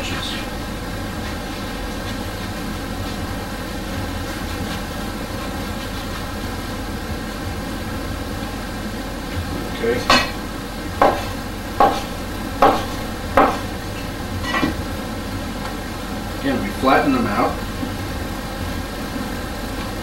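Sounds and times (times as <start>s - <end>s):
steady background hum: 0.0s - 20.0s
knife knocking on wooden board: 11.0s - 13.7s.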